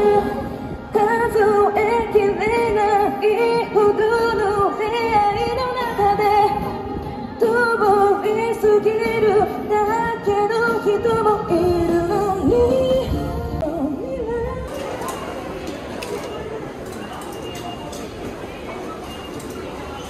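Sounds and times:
woman singing into microphone: 0:00.0 - 0:15.4.

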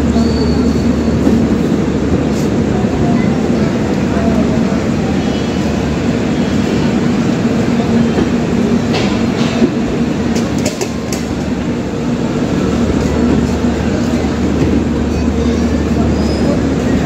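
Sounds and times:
train coaches rumbling past: 0:00.0 - 0:17.0
wheel clacks over rail joints: 0:08.2 - 0:11.5.

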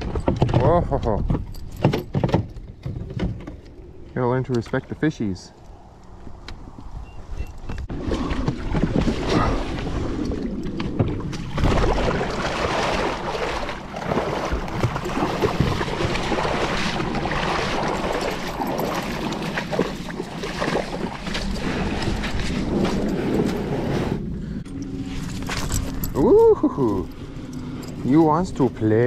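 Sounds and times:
splashing through shallow water: 0:07.9 - 0:23.8.

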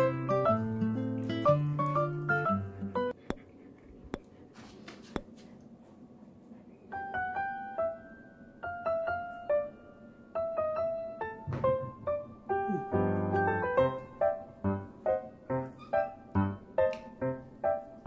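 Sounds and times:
light piano melody: 0:00.0 - 0:03.2, 0:06.9 - 0:18.0.

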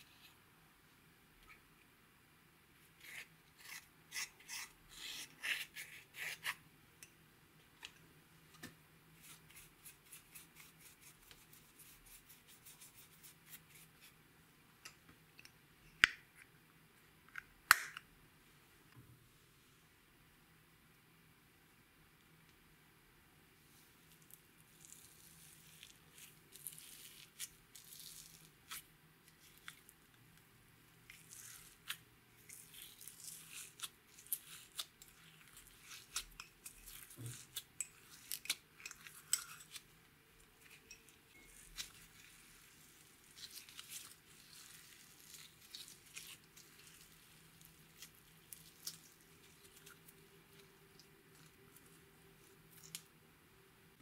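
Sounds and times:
slime being stretched: 0:41.6 - 0:53.1.

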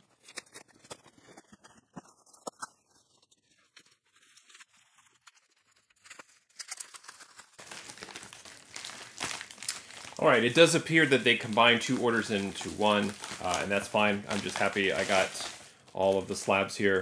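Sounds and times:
paper crinkling: 0:00.0 - 0:17.0
cardboard tearing: 0:04.1 - 0:17.0.

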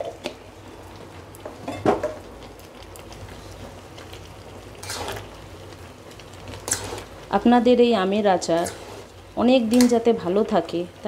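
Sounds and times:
spatula stirring: 0:04.7 - 0:05.4, 0:06.1 - 0:07.3, 0:08.4 - 0:10.1.

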